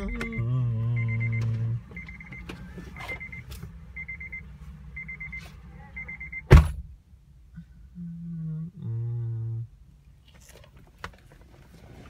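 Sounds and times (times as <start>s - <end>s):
person humming: 0.0s - 1.8s, 8.0s - 9.7s
sharp thump: 6.5s - 6.9s.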